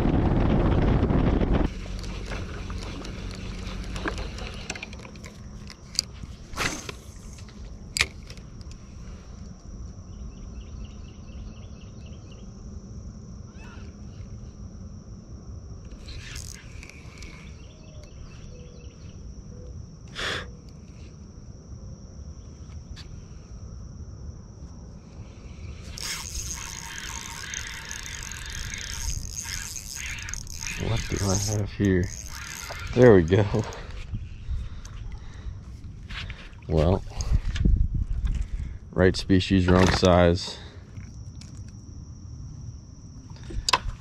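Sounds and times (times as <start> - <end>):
low rumble: 0.0 - 4.4
boat motor: 0.0 - 6.1, 25.9 - 35.6
high-pitched insect drone: 0.0 - 44.0
insect chirping trills: 0.0 - 44.0.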